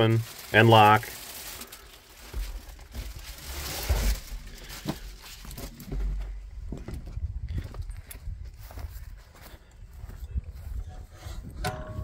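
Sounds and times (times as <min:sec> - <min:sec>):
low rumbles on microphone: 0:05.7 - 0:12.0.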